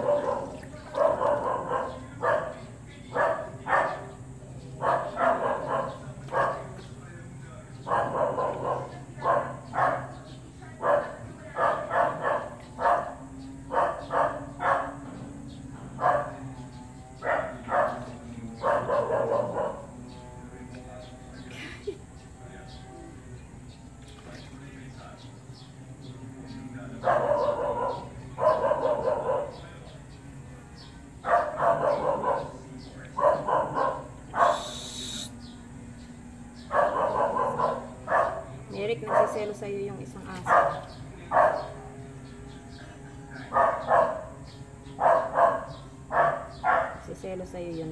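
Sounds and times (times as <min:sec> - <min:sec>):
dog barking: 0:00.0 - 0:04.2, 0:04.8 - 0:06.8, 0:07.8 - 0:10.2, 0:10.8 - 0:15.2, 0:16.0 - 0:20.0, 0:27.0 - 0:29.7, 0:31.2 - 0:34.8, 0:36.6 - 0:39.6, 0:40.4 - 0:41.8, 0:43.5 - 0:47.1.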